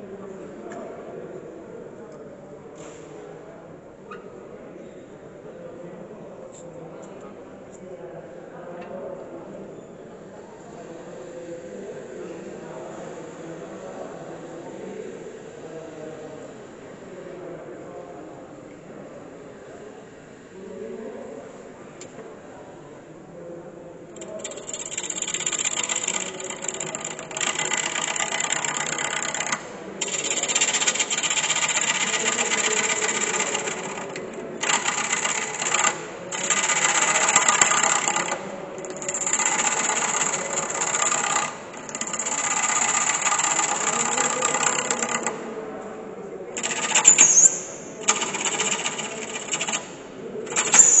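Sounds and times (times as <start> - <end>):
wood lathe gouge cutting wood: 24.9 - 45.3.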